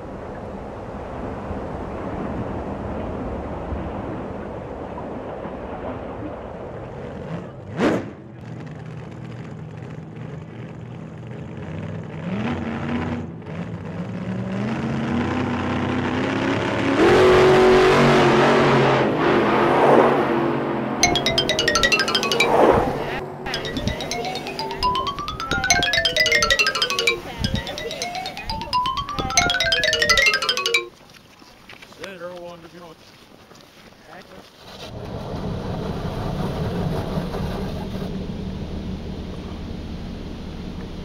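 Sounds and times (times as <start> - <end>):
pitched sound with voices: 21.0 - 30.9.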